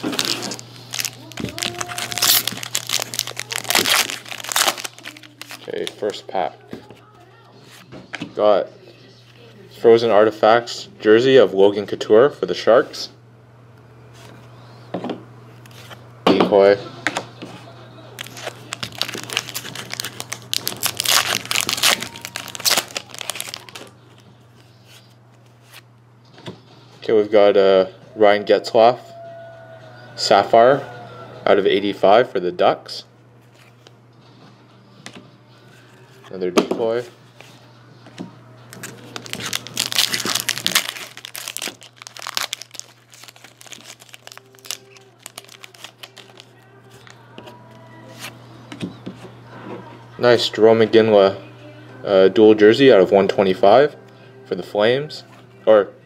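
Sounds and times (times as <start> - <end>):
cards rustling: 0.0 - 6.2, 18.2 - 25.8, 38.7 - 48.4
foil wrapper tearing and crinkling: 0.0 - 6.2, 18.2 - 24.0, 38.7 - 47.1.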